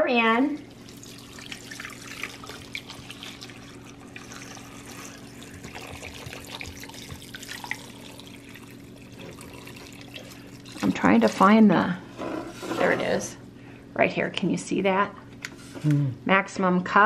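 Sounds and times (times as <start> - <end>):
water pouring into a pot: 0.7 - 11.4.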